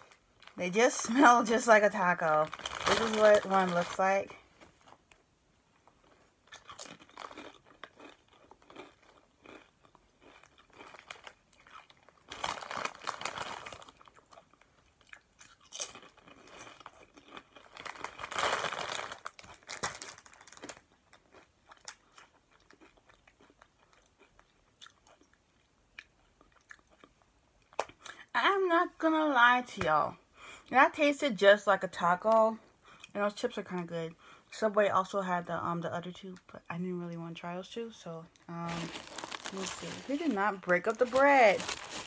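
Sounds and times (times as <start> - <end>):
crunching crispy chips: 2.4 - 4.3, 6.0 - 25.4, 38.5 - 42.0.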